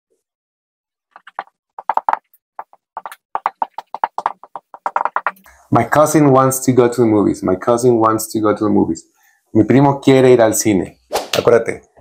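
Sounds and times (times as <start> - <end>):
marker squeaking on whiteboard: 1.2 - 5.5.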